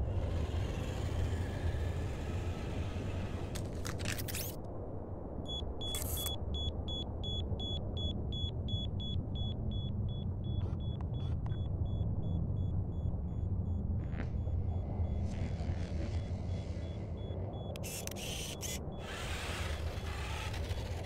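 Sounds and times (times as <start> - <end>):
steady low rumble: 4.6 - 21.0
rapid high electronic beeping: 8.4 - 19.1.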